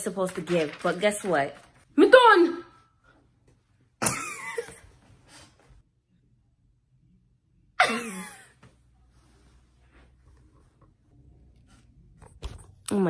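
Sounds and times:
young woman laughing: 4.0 - 4.9, 7.8 - 8.6.

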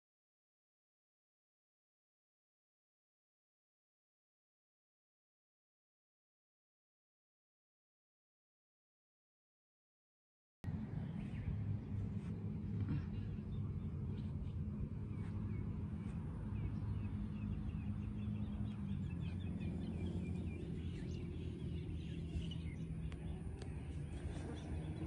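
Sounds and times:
steady low hum: 10.6 - 25.0
birds chirping: 10.7 - 25.0.

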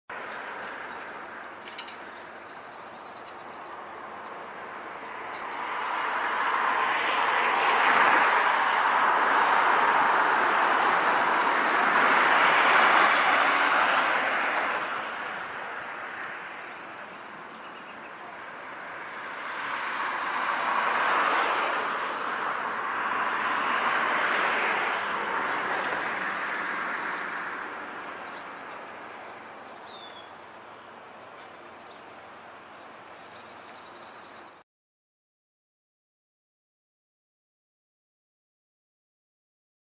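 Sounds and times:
vehicles passing: 0.1 - 34.6
bird chirp: 0.2 - 5.6, 16.6 - 19.0, 28.2 - 34.6.

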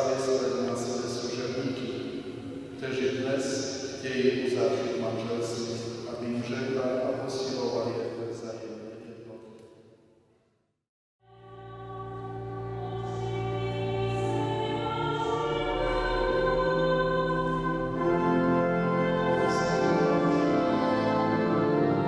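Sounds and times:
voices singing over held chords: 11.3 - 22.0.

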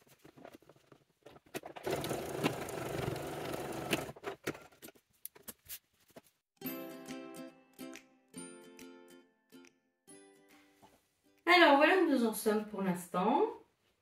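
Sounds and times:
sewing machine stitching: 1.7 - 4.7.

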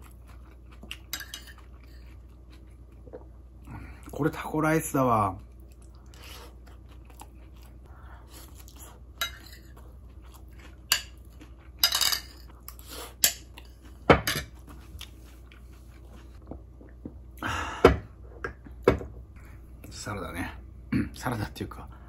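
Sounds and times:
person chewing: 0.0 - 4.2, 5.4 - 17.0.

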